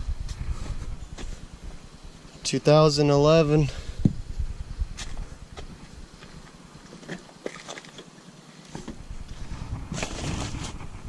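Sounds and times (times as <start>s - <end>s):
footsteps on dirt and gravel: 0.2s - 1.8s, 4.9s - 7.7s.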